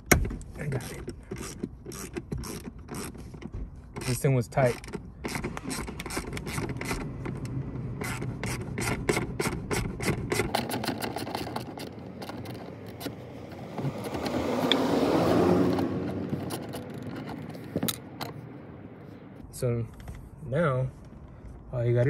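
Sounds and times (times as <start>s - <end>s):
ratchet wrench clicking: 0.8s - 7.1s, 8.0s - 14.8s, 15.6s - 18.3s.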